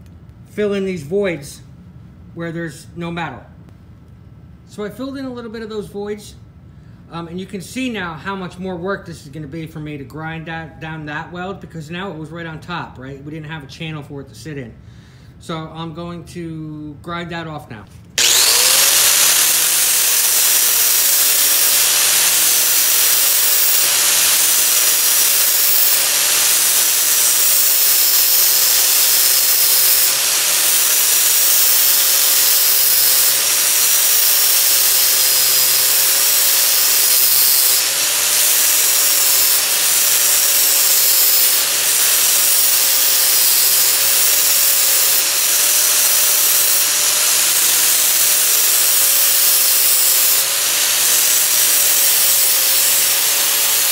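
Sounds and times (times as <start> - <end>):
angle grinder grinding metal: 18.2 - 53.9.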